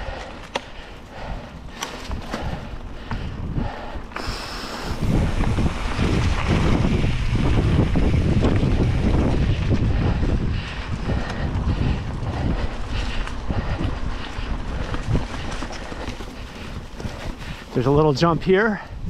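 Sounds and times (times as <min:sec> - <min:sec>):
bike clicks and rattles: 0:00.0 - 0:18.4
wind buffeting microphone: 0:00.0 - 0:19.0
tyres rolling over dirt: 0:04.1 - 0:18.5.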